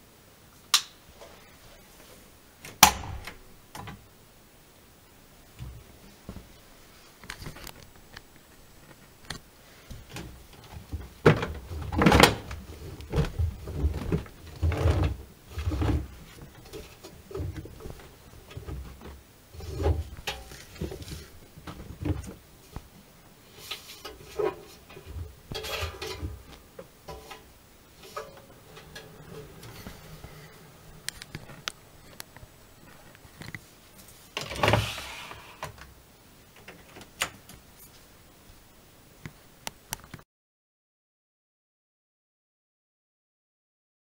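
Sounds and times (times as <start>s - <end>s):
wet laundry rustling: 9.7s - 35.1s.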